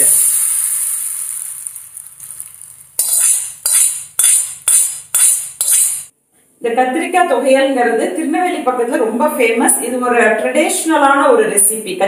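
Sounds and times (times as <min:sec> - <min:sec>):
hot oil sizzling: 0:00.0 - 0:06.1
spoon scraping a small pan: 0:03.0 - 0:06.1.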